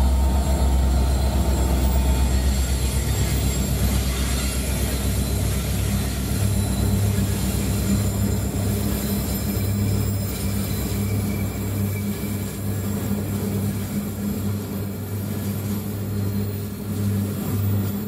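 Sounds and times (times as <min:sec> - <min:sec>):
train wagons rumbling on rails: 0:00.0 - 0:18.0.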